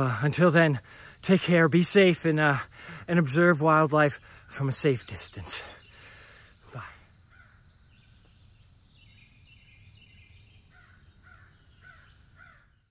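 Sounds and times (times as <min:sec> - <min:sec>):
faint birdsong call notes: 0:00.0 - 0:12.9
harsh caw-like bird calls: 0:05.7 - 0:07.8, 0:10.7 - 0:12.9.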